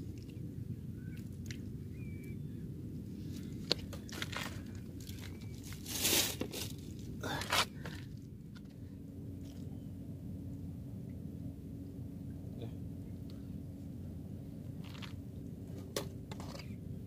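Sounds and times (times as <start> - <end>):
steady low rumble: 0.0 - 17.0
crunching scraping rustles: 3.3 - 7.9.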